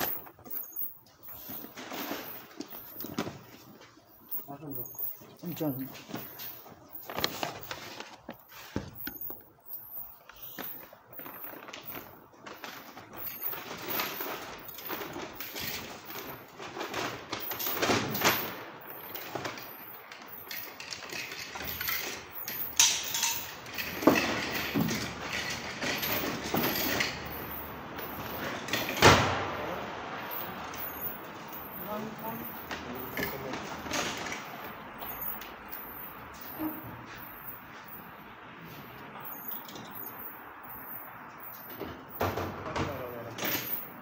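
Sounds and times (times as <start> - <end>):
rustling in a plastic bin: 0.0 - 9.3
items knocking and clattering: 0.0 - 38.2, 39.0 - 44.0.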